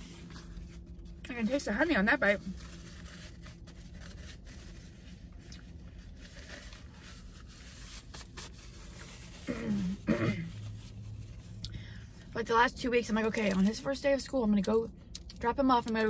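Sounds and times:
paper rustling and tearing: 0.0s - 10.0s.

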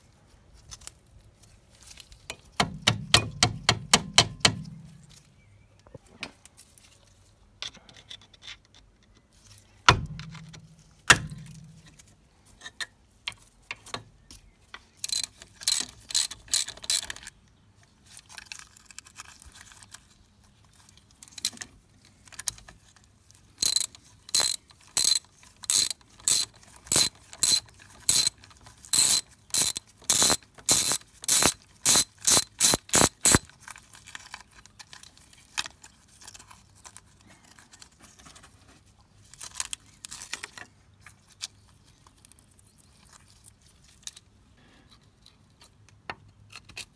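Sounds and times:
sharp metal knocks: 2.6s - 4.9s, 9.9s - 11.8s
socket ratchet clicking: 23.6s - 28.4s, 29.0s - 33.4s.

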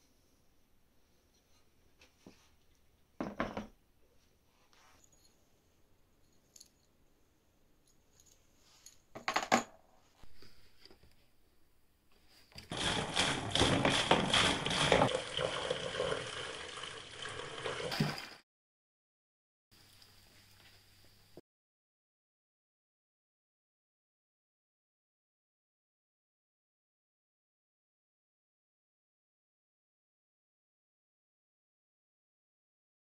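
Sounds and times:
water pouring onto metal parts: 12.6s - 18.4s
metal parts knocking in plastic tub: 12.7s - 15.1s.

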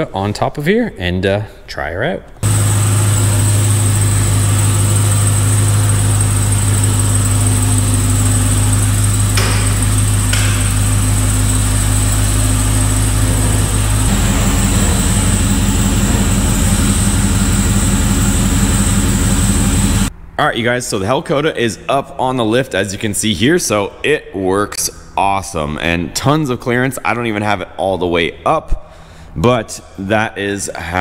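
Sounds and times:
high whine: 2.4s - 20.1s
pickup engine idling: 2.4s - 20.1s.

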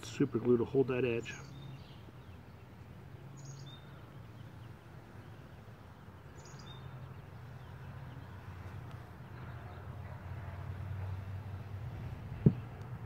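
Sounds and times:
small bird chirps: 1.1s - 9.4s.

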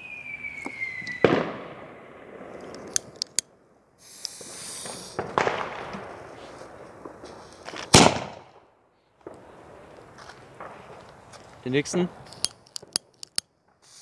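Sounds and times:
firework crackling pops: 0.0s - 14.0s
firework clicks: 0.5s - 1.8s, 2.4s - 14.0s
firework fizzing hiss: 4.0s - 8.2s, 13.8s - 14.0s.

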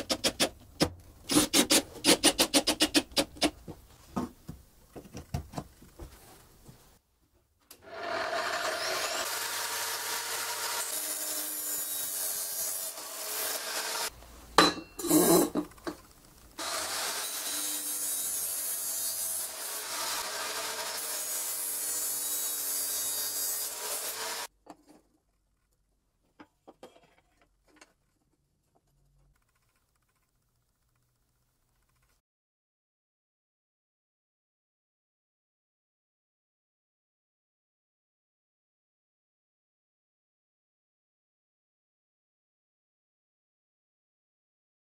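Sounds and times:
angle grinder cutting steel: 7.8s - 14.1s, 16.6s - 24.5s.

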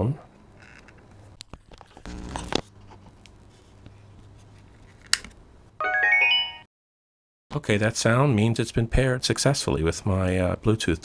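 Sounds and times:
rising electronic chime: 5.8s - 6.7s.

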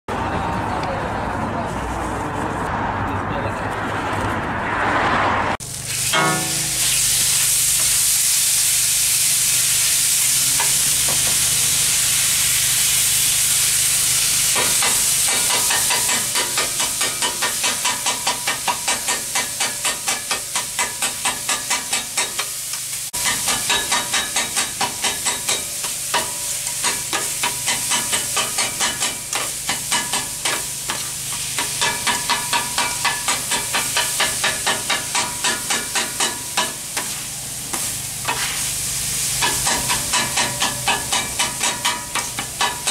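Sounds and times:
chicken sizzling on griddle: 5.6s - 42.9s
metal scraper clacking on griddle: 6.1s - 6.9s, 14.6s - 22.6s, 23.2s - 38.6s, 39.4s - 42.9s.

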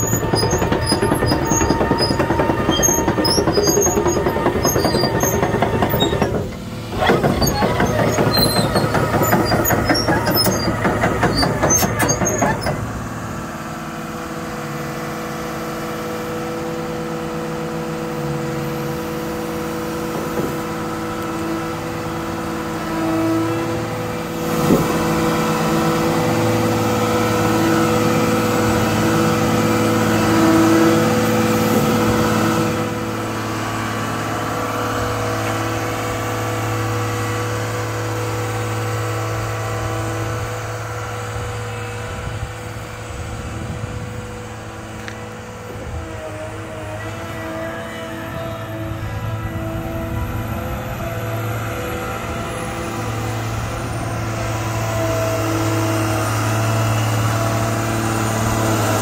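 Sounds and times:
rapid rattling clatter: 0.0s - 13.0s
diesel engine idling: 0.0s - 59.0s.

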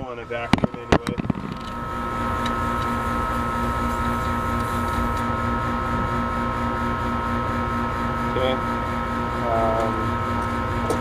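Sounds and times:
electric motor machine whining: 0.1s - 7.5s.

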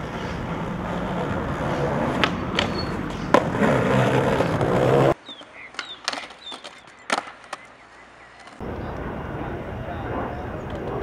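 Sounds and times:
skateboard wheels rolling: 0.0s - 11.0s
skateboard clacks: 0.1s - 7.7s.

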